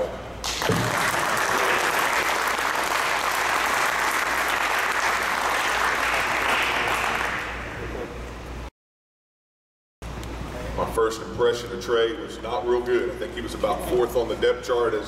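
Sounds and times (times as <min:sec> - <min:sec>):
crowd applauding: 0:00.4 - 0:07.8.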